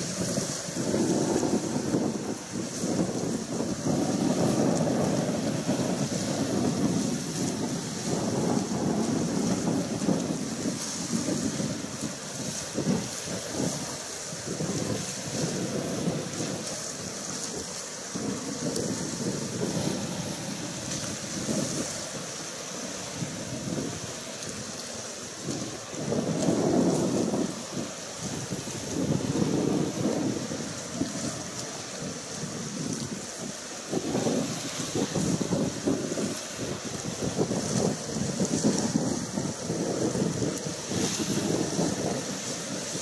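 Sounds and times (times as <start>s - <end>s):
wind buffeting microphone: 0.0s - 43.0s.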